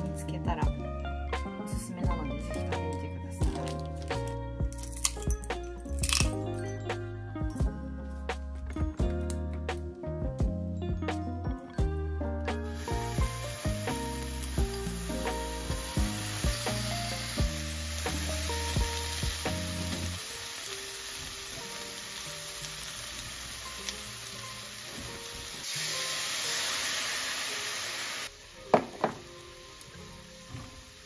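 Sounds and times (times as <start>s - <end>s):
background music: 0.0s - 31.0s
food sizzling in frying pan: 12.7s - 31.0s.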